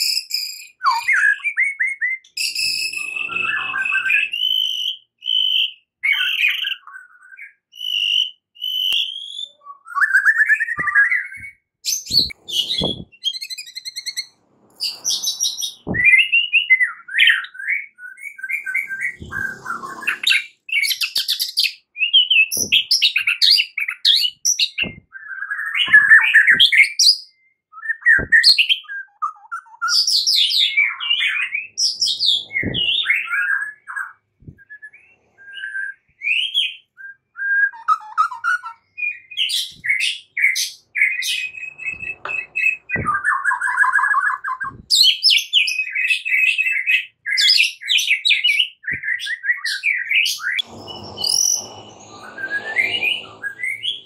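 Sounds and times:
bird singing whistled phrases: 0:00.0 - 0:14.2
harsh buzzing bird chatter: 0:02.3 - 0:04.7.

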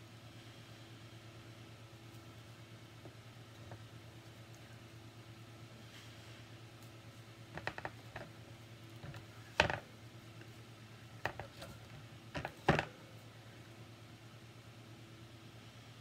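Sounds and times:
board knocking on wire rack: 0:09.0 - 0:09.8.

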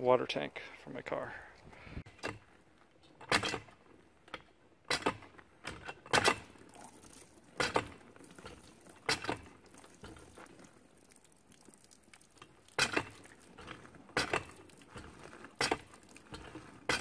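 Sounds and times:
hand pump metallic clank: 0:03.2 - 0:03.7, 0:04.3 - 0:10.3, 0:12.8 - 0:17.0.

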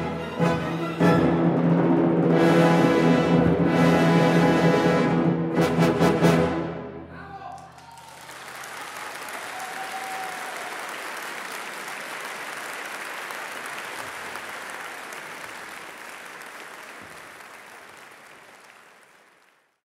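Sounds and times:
audience applauding: 0:07.4 - 0:19.8.

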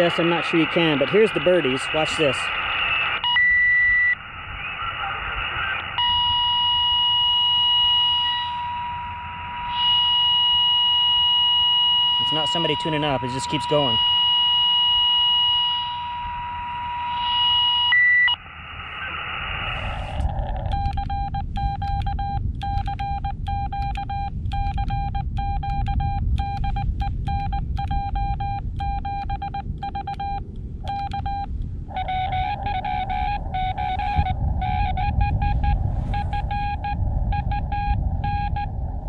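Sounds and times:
radio band hiss: 0:00.0 - 0:03.2, 0:04.2 - 0:06.1, 0:08.0 - 0:08.7, 0:12.2 - 0:14.0, 0:18.4 - 0:20.9, 0:31.9 - 0:36.8
steady radio carrier tone: 0:00.0 - 0:21.2, 0:30.8 - 0:38.8
morse code tones: 0:06.0 - 0:18.4, 0:20.4 - 0:38.8.

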